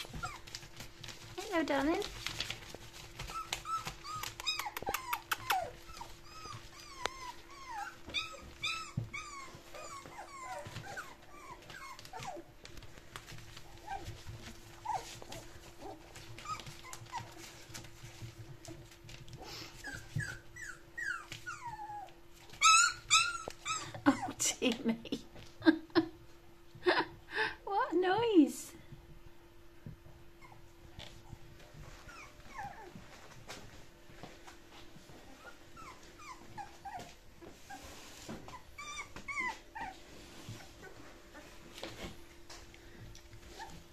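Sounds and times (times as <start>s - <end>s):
puppies whimpering and squeaking: 0.0s - 24.6s, 30.2s - 33.9s, 35.0s - 43.9s
puppies yelping: 2.9s - 12.6s, 13.6s - 17.9s, 19.5s - 24.4s, 31.8s - 33.3s, 35.3s - 37.9s, 38.5s - 41.6s.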